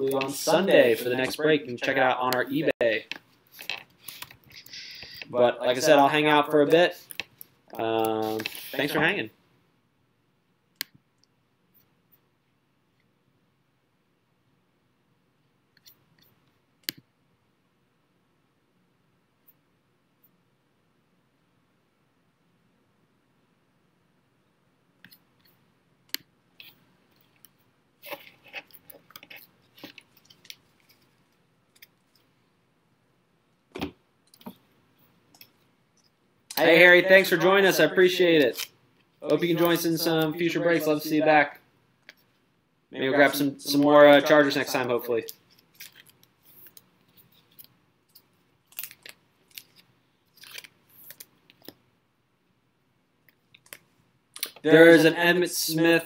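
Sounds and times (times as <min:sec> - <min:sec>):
plastic crinkling and rustling: 0:45.2 - 0:51.8.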